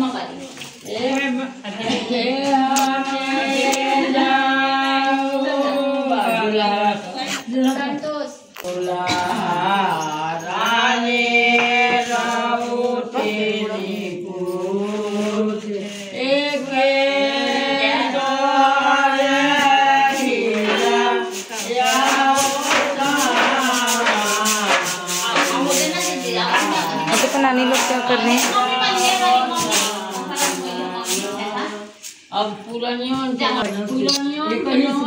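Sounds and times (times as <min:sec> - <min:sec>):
women singing together: 0:00.0 - 0:35.0
baskets tapping and rattling: 0:20.5 - 0:31.3.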